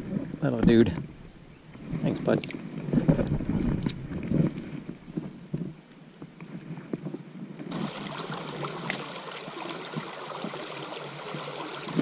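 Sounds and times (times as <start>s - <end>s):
creek water rushing over stones: 7.7s - 12.0s.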